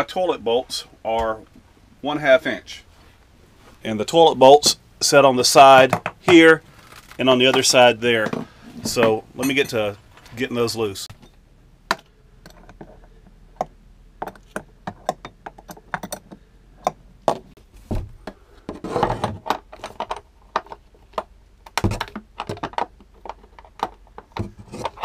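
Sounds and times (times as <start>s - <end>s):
scraping and handling noise: 5.5s - 25.0s.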